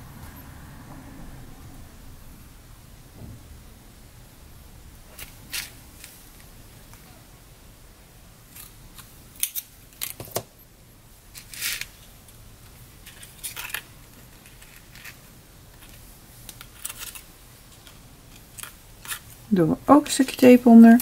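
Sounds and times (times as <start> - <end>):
paper and card rustling clicks: 15.8 - 19.3.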